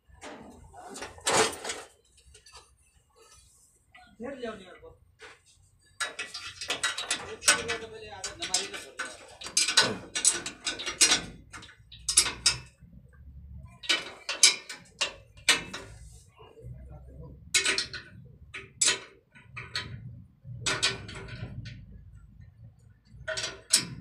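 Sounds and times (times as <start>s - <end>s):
metallic clicks and clinks: 6.0s - 16.0s.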